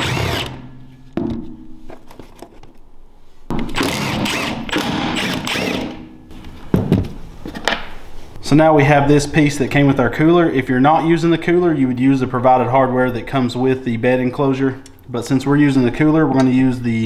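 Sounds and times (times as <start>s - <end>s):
impact driver hammering: 0.0s - 1.6s, 3.5s - 6.2s.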